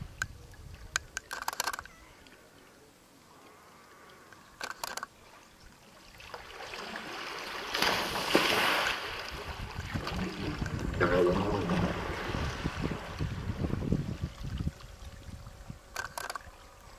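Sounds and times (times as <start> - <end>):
sharp clicks: 1.0 - 2.0, 4.3 - 5.1, 15.9 - 16.5
water sloshing and trickling: 3.3 - 16.9
loud water splash: 6.2 - 13.6.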